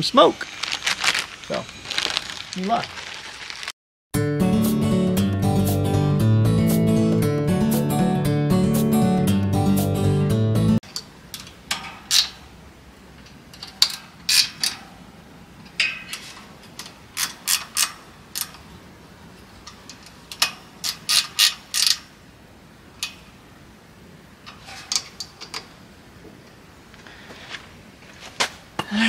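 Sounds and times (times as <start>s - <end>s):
hand tools clicking and clacking: 15.7s - 18.7s, 19.6s - 22.1s, 24.5s - 25.7s.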